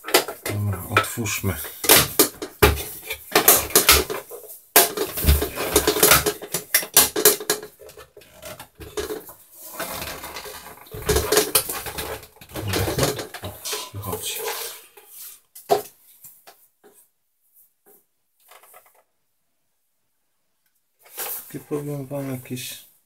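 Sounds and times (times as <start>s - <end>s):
hard plastic knocking and clattering: 0.0s - 13.8s.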